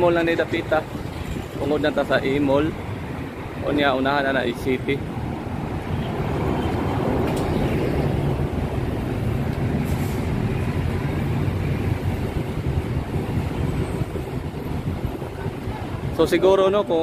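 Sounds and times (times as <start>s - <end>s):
street traffic noise: 0.0s - 17.0s
bus driving past: 5.0s - 16.1s.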